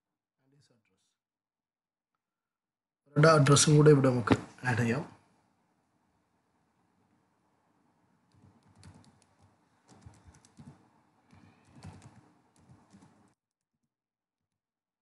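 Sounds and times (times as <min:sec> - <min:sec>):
computer keyboard typing: 0:08.3 - 0:13.4.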